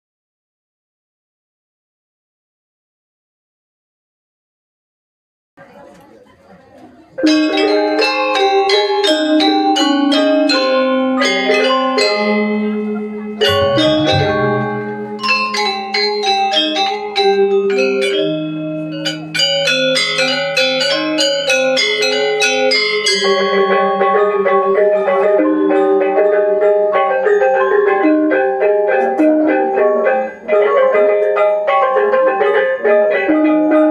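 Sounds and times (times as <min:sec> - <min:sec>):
gamelan metallophones ringing: 0:07.2 - 0:33.9
deep gong stroke: 0:13.2 - 0:15.9.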